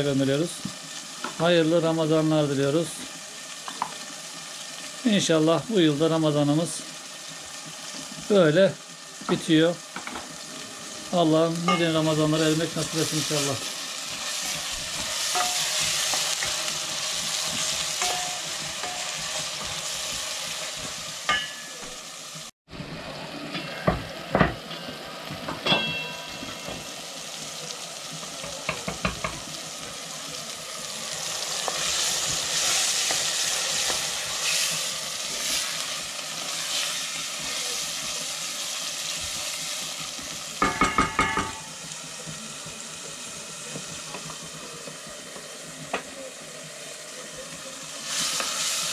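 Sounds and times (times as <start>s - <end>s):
food sizzling in a pan: 0.0s - 48.9s
utensil clinking against a pan: 18.0s - 19.2s, 21.3s - 21.9s, 25.5s - 26.9s, 40.6s - 41.7s.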